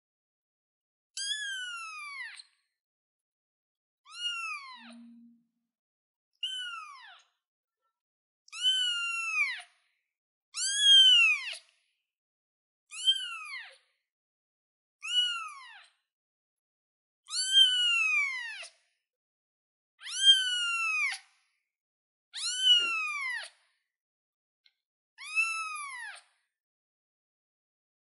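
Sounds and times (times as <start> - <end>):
kitten meowing: 4.1 - 5.2, 8.6 - 9.6, 15.0 - 15.9, 20.0 - 21.2, 22.4 - 23.5, 25.2 - 26.2.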